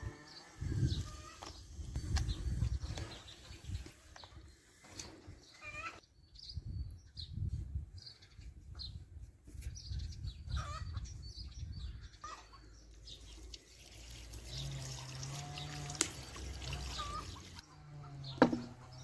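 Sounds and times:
small birds chirping: 0.2 - 19.0
chickens clucking: 16.7 - 19.0.

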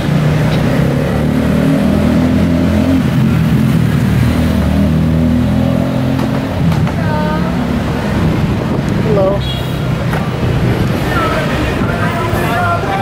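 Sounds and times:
street traffic engine hum: 0.0 - 13.0.

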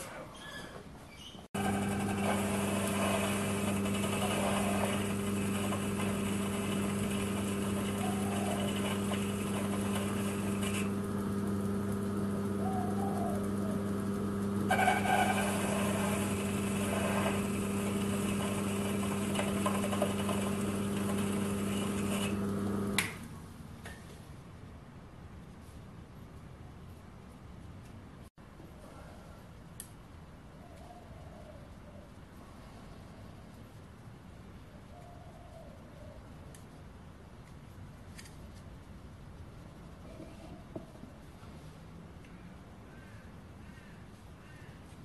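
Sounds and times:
metal lathe motor humming: 1.6 - 23.0.

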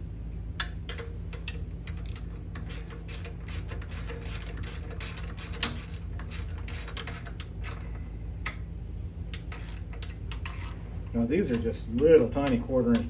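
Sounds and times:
steady low hum: 0.0 - 13.0
wrench clicking: 0.6 - 8.6, 9.3 - 10.8.

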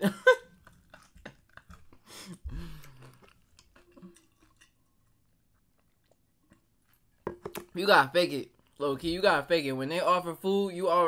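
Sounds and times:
man gulping water: 0.0 - 5.0.

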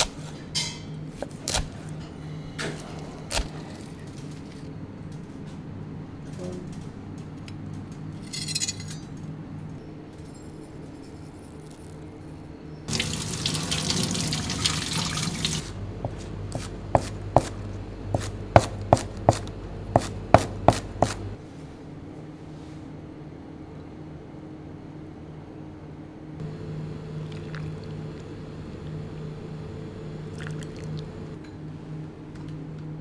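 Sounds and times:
water running from a tap: 12.9 - 15.7.

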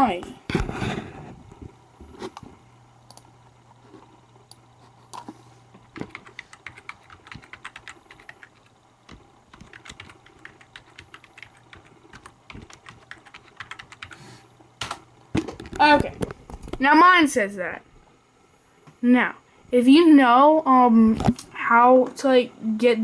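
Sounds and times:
computer keyboard typing: 6.0 - 14.2.

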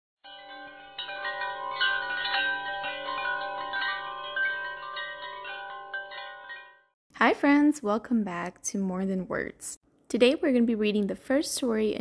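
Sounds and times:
ringing chime-like music: 0.2 - 7.0.

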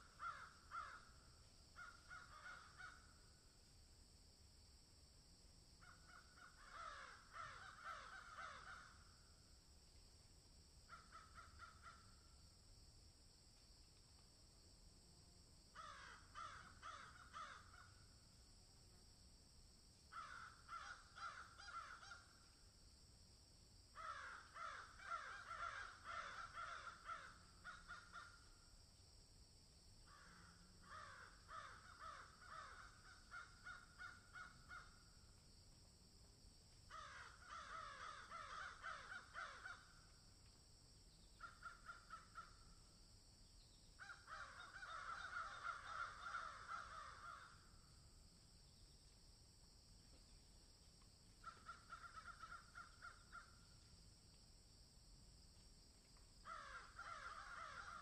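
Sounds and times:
crows cawing: 0.0 - 1.2, 1.8 - 3.1, 5.8 - 9.1, 10.9 - 12.1, 15.8 - 18.0, 20.1 - 22.4, 24.0 - 28.5, 30.1 - 35.0, 36.9 - 40.1, 41.4 - 42.6, 44.0 - 47.7, 51.4 - 53.6, 56.4 - 58.0.

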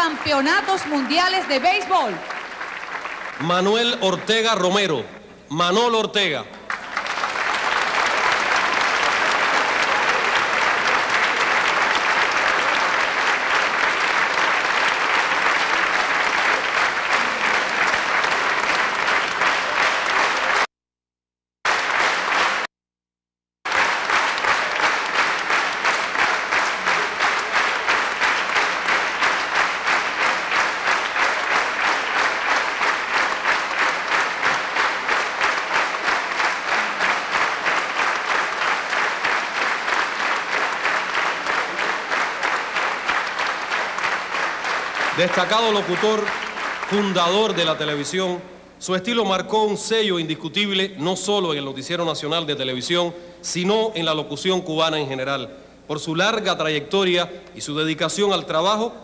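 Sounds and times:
audience applauding: 0.0 - 4.8, 6.6 - 20.7, 21.7 - 22.7, 23.7 - 48.2.

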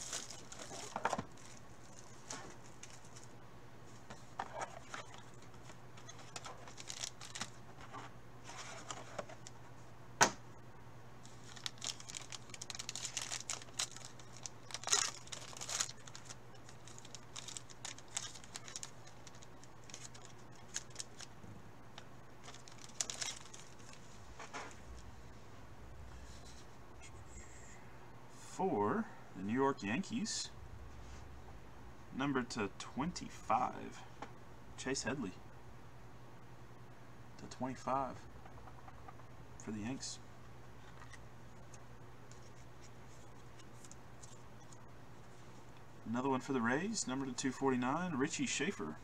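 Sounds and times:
trading cards rustling and clicking: 0.0 - 3.3, 4.0 - 9.6, 11.2 - 21.3, 22.0 - 24.8
steady low hum: 0.0 - 49.0.

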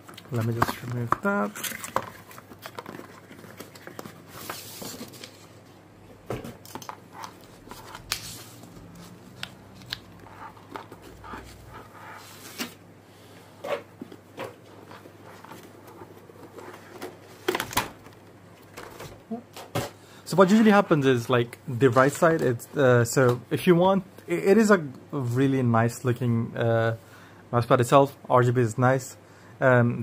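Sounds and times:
packaging rustling and scraping: 0.1 - 5.8, 6.6 - 12.8, 13.7 - 19.2.

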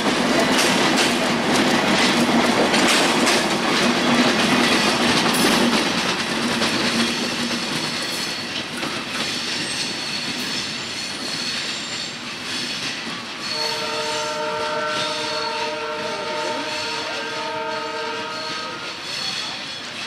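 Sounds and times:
train wheels clattering: 0.0 - 20.0
train horn chord: 13.5 - 19.0.

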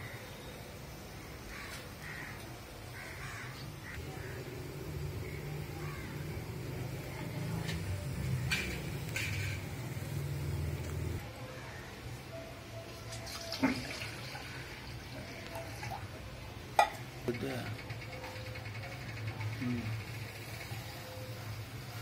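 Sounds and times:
water pouring into metal pot: 13.1 - 16.0.

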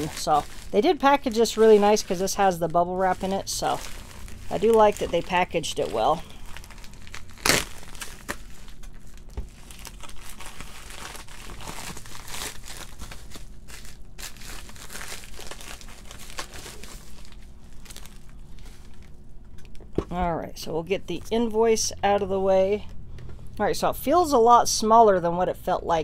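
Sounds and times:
plastic and bubble wrap crinkling: 0.0 - 19.9.

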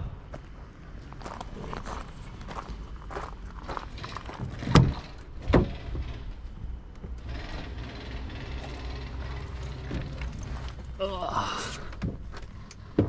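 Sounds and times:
steady low hum: 0.0 - 13.0
truck door clunks: 4.4 - 6.1.

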